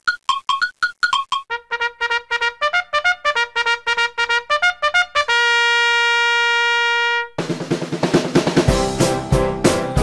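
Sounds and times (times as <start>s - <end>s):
brass fanfare: 1.5s - 7.5s.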